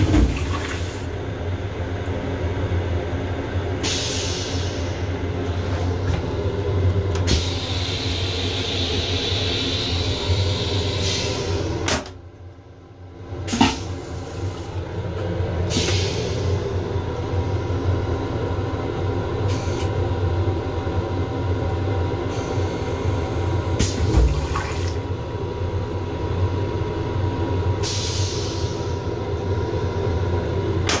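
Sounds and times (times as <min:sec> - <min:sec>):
toilet flush click: 0:00.0 - 0:01.1, 0:13.5 - 0:14.6, 0:23.8 - 0:25.0
low machinery hum: 0:00.0 - 0:31.0.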